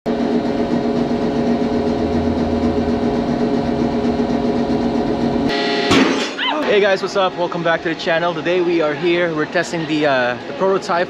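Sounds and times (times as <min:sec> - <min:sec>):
engine droning steadily: 0:00.1 - 0:05.7.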